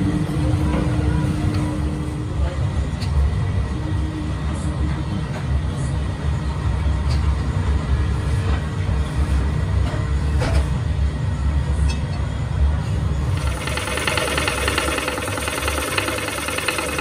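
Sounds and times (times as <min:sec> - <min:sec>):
lathe motor low rumble: 0:13.2 - 0:17.0.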